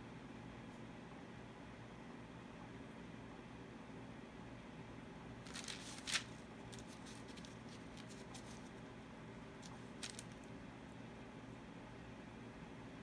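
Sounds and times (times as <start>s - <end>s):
low steady room hum: 0.0s - 13.0s
paper towel rustling: 5.4s - 8.9s, 9.6s - 10.5s.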